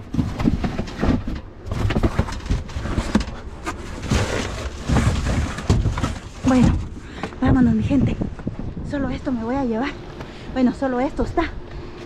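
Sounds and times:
trash knocking and clattering: 0.0s - 7.9s
rustling trash: 0.0s - 8.5s.

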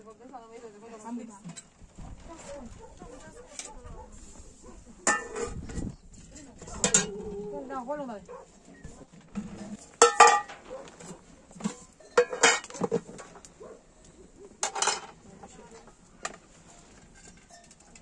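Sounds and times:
metal pots and pans clinking: 5.0s - 5.8s, 6.6s - 7.2s, 9.4s - 13.4s, 14.6s - 18.0s.

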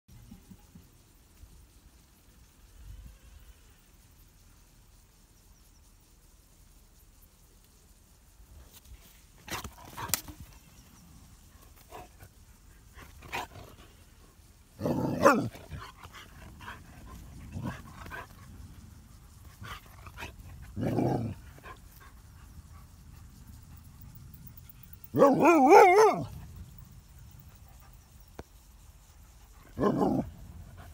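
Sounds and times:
dog growling: 14.8s - 15.8s, 20.1s - 21.4s.

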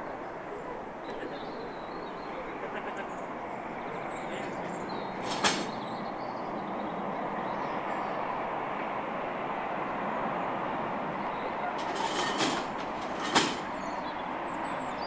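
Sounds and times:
train rumbling: 1.9s - 15.0s
sharp metal clank: 11.8s - 13.9s.

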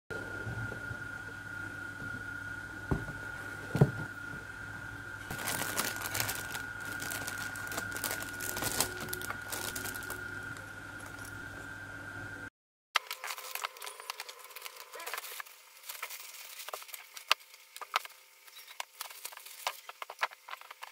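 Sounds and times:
low hum: 0.1s - 12.5s
steady high whine: 0.2s - 18.8s
plastic bags crinkling: 5.3s - 11.4s, 13.0s - 17.8s.

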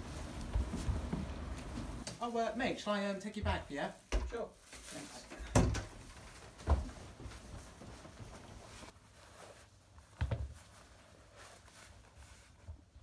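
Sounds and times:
shoes thumping on carpet: 0.0s - 2.0s, 6.6s - 8.4s
faint rustling: 0.0s - 2.7s, 4.6s - 13.0s.

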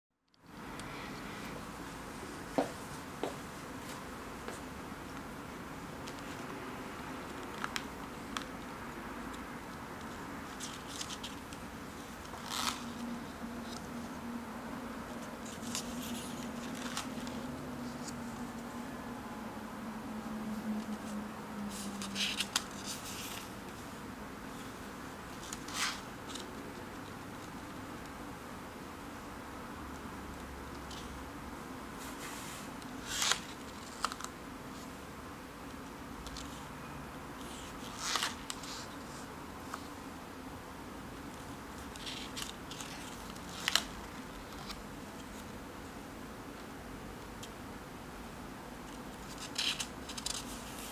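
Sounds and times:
faint steady hum: 0.3s - 50.9s
paper pages rustling: 10.0s - 14.1s, 15.2s - 18.6s, 20.8s - 23.8s, 25.3s - 28.0s, 32.0s - 34.9s, 37.4s - 39.9s, 41.8s - 45.6s, 48.9s - 50.9s.

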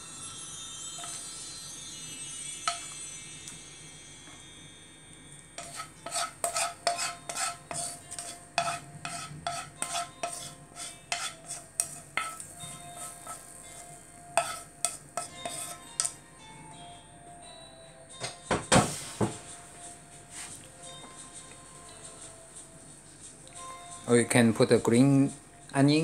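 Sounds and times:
chopsticks clattering on wok and plate: 2.6s - 3.0s, 5.6s - 13.5s, 14.4s - 16.2s.

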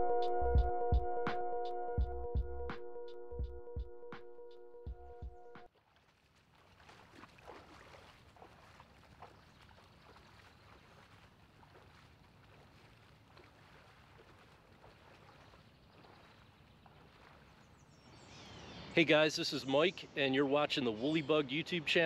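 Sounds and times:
legs wading through water: 5.7s - 18.8s.

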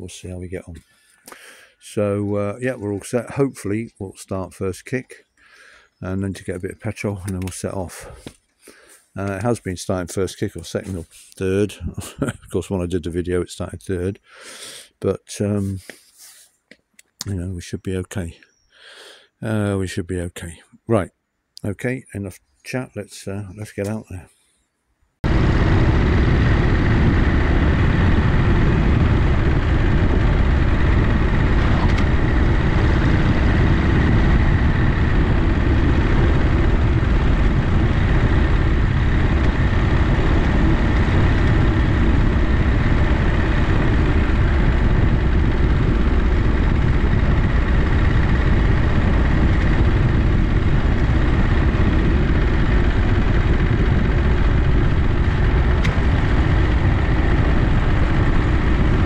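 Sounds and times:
motorcycle engine rumbling: 25.2s - 59.0s.

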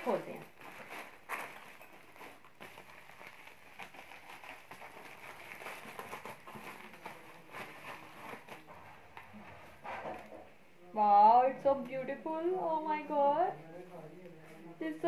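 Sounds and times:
plastic packaging crinkling: 0.0s - 9.4s.

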